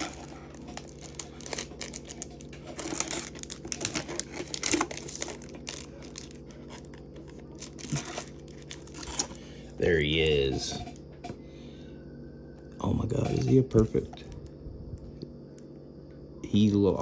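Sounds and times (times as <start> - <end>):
foil wrapper crinkling: 0.0 - 9.5.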